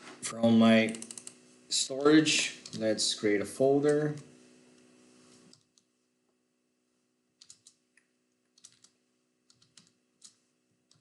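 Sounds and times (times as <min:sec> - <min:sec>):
faint keyboard typing: 0:00.8 - 0:01.4, 0:02.0 - 0:02.9, 0:07.4 - 0:11.0.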